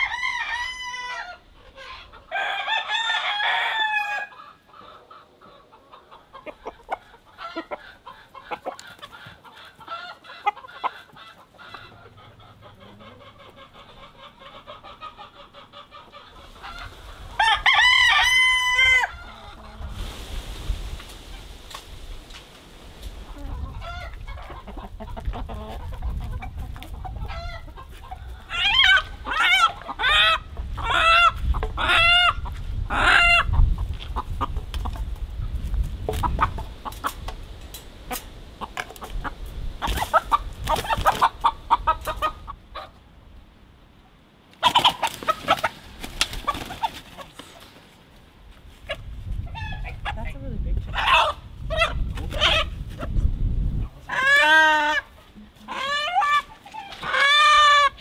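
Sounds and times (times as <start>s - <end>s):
chickens squawking and clucking: 0.0s - 43.1s, 44.0s - 58.0s
low wind rumble: 16.3s - 44.0s, 48.3s - 55.2s.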